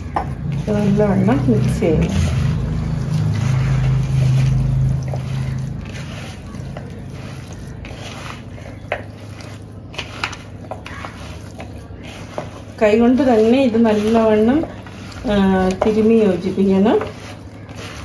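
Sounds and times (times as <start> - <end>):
hands squishing raw chicken: 1.6 - 16.0.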